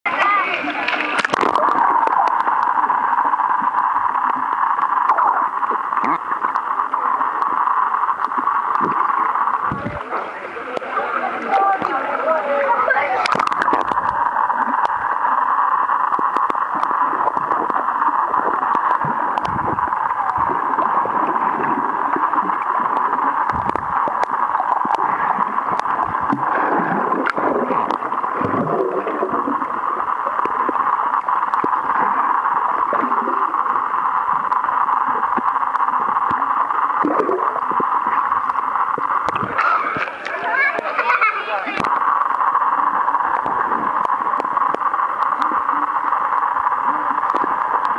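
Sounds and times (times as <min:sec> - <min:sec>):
muffled underwater rushing: 0:00.1 - 0:47.9
water bubbling and gurgling: 0:00.1 - 0:47.9
faint clicks: 0:16.1 - 0:40.9, 0:41.8 - 0:47.9.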